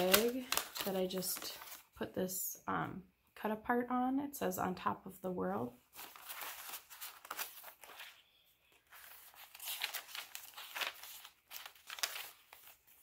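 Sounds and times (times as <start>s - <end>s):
paper rustling and crinkling: 0.0s - 2.0s, 5.9s - 13.0s.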